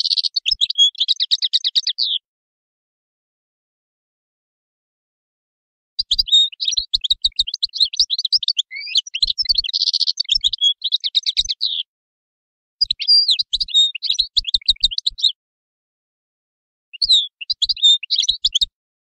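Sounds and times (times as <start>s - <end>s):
goldfinch twittering song: 0.0s - 2.2s, 6.0s - 11.9s, 12.8s - 15.4s, 17.0s - 18.7s.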